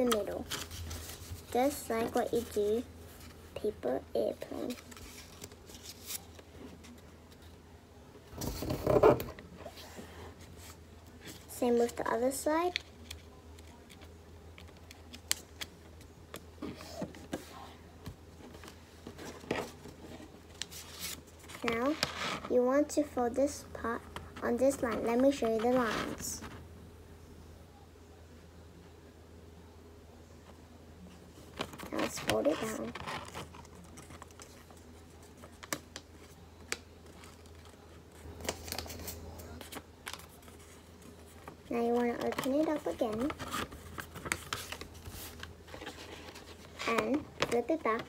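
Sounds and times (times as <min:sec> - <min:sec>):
paper folding and crinkling: 0:00.0 - 0:07.5, 0:18.4 - 0:22.5, 0:31.4 - 0:48.0
low steady hum: 0:00.0 - 0:48.0.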